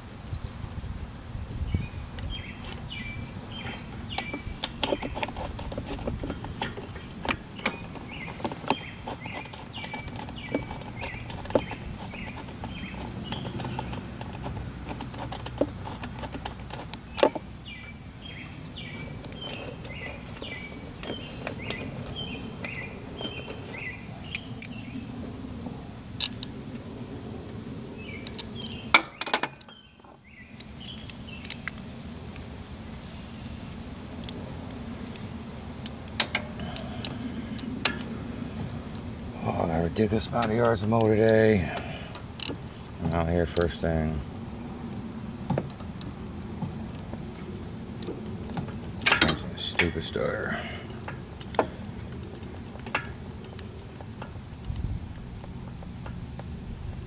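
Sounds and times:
bird chirping: 0.3 - 34.3, 49.4 - 56.5.

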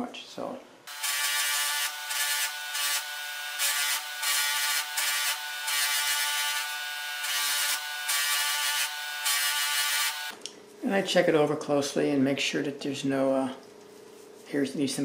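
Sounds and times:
bench motor whine: 0.9 - 10.3.

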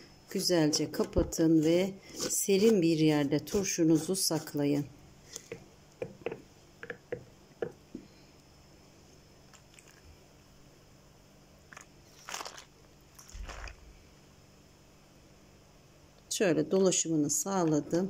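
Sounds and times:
liquid sloshing: 11.7 - 13.8.

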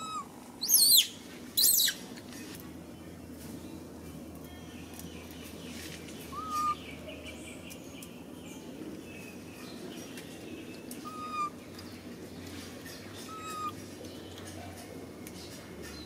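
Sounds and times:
steady low background hum: 0.0 - 16.0
bird calling clear rising note: 11.0 - 11.6, 13.3 - 13.8.

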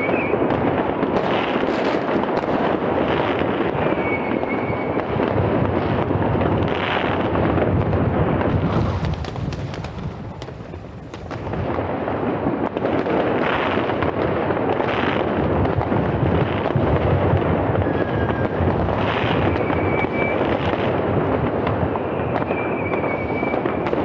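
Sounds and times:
firework whistle: 0.0 - 6.0, 8.3 - 11.1, 17.1 - 24.0
fireworks banging and cracking: 0.0 - 24.0.

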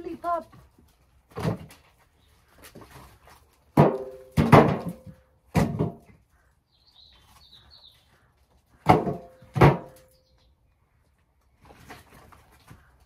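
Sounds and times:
firewood knocking into wheelbarrow: 1.3 - 2.0, 3.7 - 6.2, 8.8 - 10.1.

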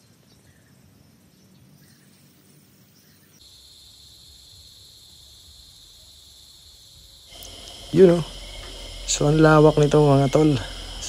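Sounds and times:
faint outdoor ambience: 0.0 - 11.0
high-pitched insect drone: 3.4 - 11.0.

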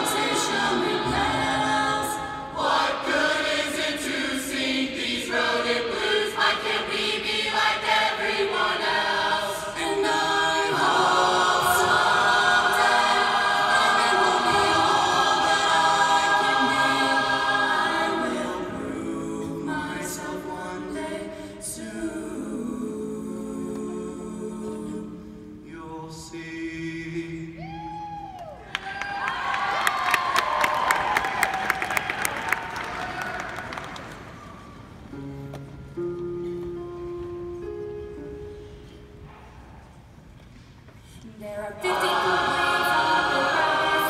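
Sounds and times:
mixed choir singing: 0.0 - 27.6, 41.4 - 44.0.

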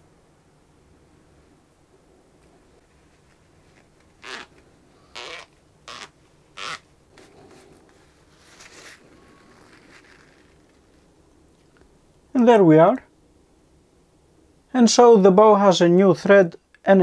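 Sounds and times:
tissue rustling: 2.8 - 11.2.

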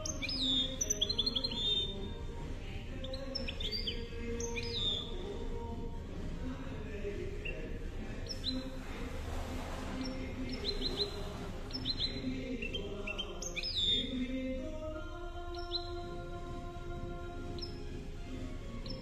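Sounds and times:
downward-sweeping bird whistles: 0.0 - 2.2, 3.0 - 5.3, 7.4 - 14.2, 17.5 - 17.9
bird chirping: 0.0 - 19.0.

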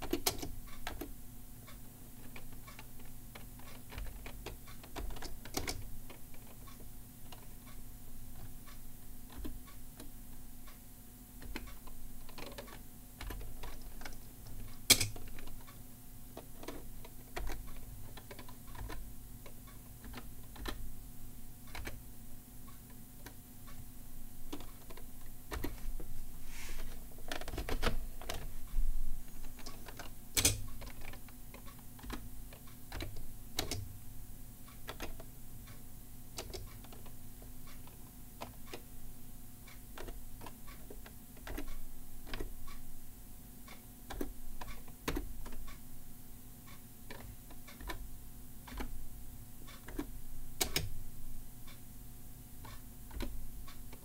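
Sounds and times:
keyboard key presses clicking: 0.0 - 1.1, 2.2 - 7.4, 11.4 - 15.7, 16.4 - 19.0, 20.0 - 20.8, 24.5 - 25.8, 29.4 - 33.9, 36.4 - 37.2, 40.0 - 42.5, 44.1 - 45.8, 49.7 - 51.0.

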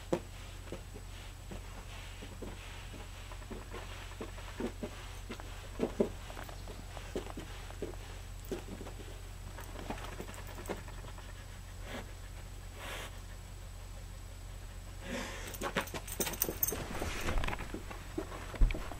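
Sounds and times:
steady low hum: 0.0 - 18.9
dog sniffing carpet: 0.1 - 18.9
dog footsteps: 1.5 - 11.1
collar tags jingling: 9.6 - 11.3, 15.4 - 16.9.

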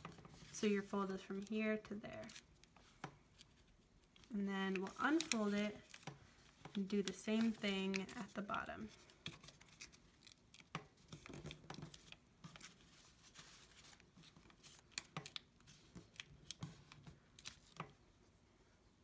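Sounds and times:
paper crinkling while folded: 0.0 - 18.1.

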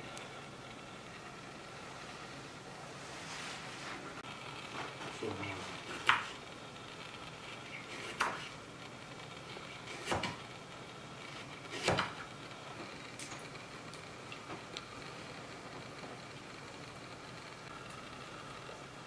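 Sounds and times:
knife chopping on wooden board: 6.0 - 6.3, 8.0 - 8.5, 9.9 - 10.4, 11.7 - 12.2.

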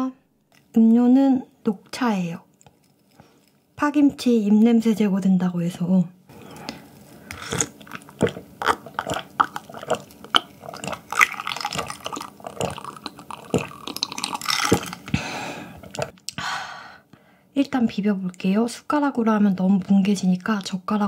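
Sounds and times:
person gulping tea: 6.6 - 16.4.

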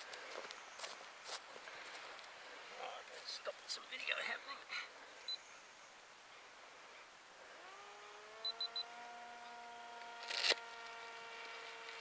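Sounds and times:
hum sliding up in pitch: 7.4 - 12.0
camera high beeps: 8.4 - 8.9.

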